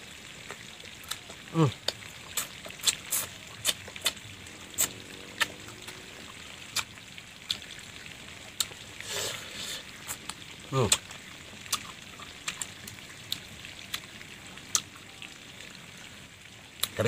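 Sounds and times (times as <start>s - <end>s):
crunchy fruit chewing: 0.5s - 4.2s, 4.8s - 6.0s, 11.7s - 12.7s.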